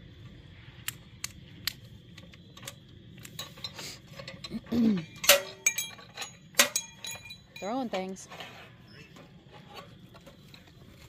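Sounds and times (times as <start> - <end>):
light metallic clicks and rattles: 0.8 - 8.3.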